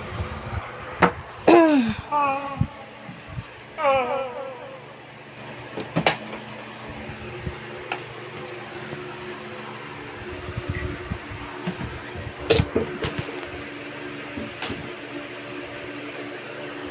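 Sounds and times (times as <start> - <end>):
steady hum: 0.0 - 16.9.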